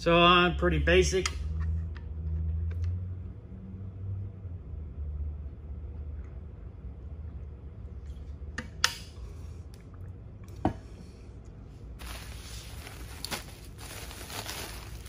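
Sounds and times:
low steady hum: 0.0 - 15.0
bubble wrap crinkling: 12.0 - 15.0.

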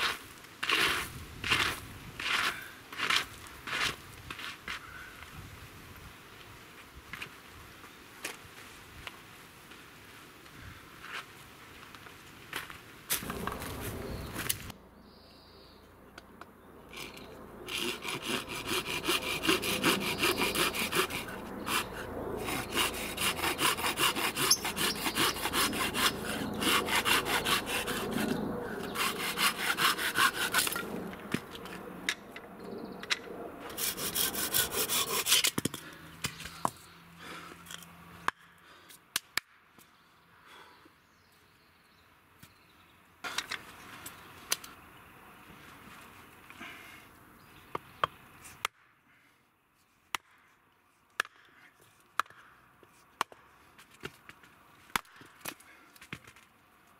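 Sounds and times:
hand saw cutting board: 0.0 - 4.0, 16.9 - 31.8, 33.7 - 36.4.

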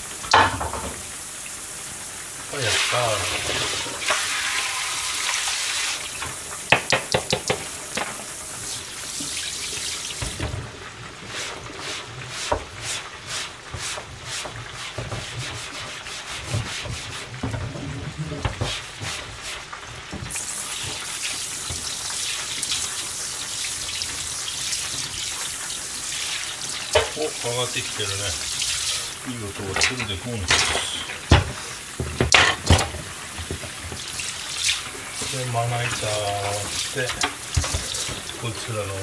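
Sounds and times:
tap water running into sink: 0.0 - 39.0
cutting board being scrubbed: 11.2 - 20.1.

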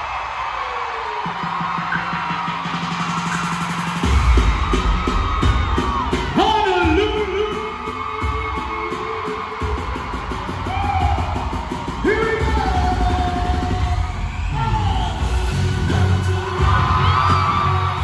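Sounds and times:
pulsing bass beat: 1.1 - 18.0.

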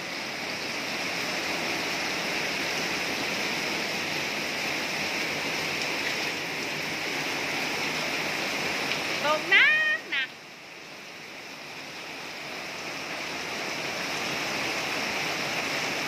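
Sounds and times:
heavy rain pouring: 0.0 - 16.0.

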